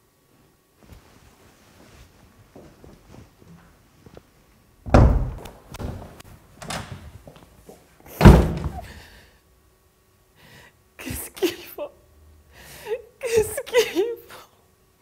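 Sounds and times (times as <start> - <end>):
door banging shut: 4.9 - 6.0, 8.2 - 8.9.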